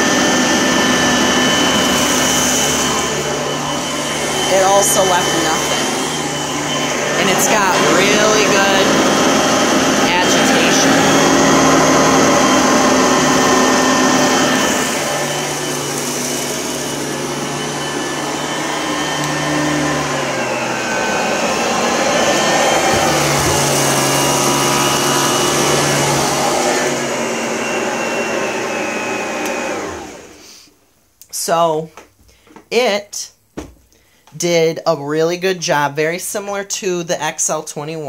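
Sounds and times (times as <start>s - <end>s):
vacuum motor winding down: 0.0s - 30.4s
vacuum cleaner running: 0.0s - 30.7s.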